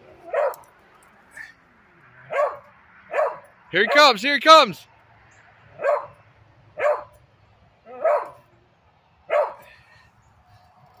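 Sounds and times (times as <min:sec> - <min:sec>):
dog barking: 0:00.3 - 0:00.6, 0:02.3 - 0:03.5, 0:05.7 - 0:06.2, 0:06.8 - 0:07.2, 0:07.9 - 0:08.4, 0:09.3 - 0:09.6.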